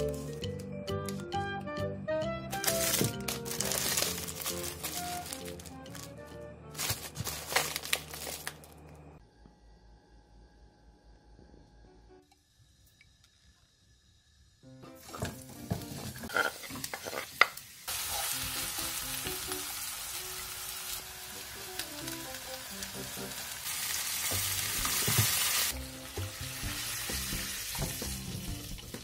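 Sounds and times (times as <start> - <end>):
background music: 0.0 - 7.9, 17.9 - 29.0
onions sizzling in oil: 13.7 - 29.0
sauce sizzling in hot pan: 13.7 - 29.0.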